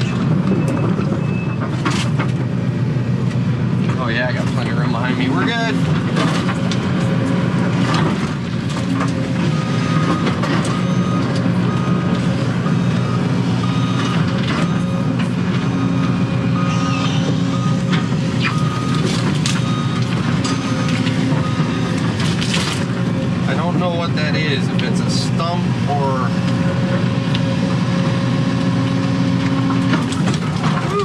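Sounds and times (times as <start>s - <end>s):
excavator diesel engine running: 0.0s - 31.0s
backup alarm beeping: 9.5s - 12.2s, 12.8s - 22.0s.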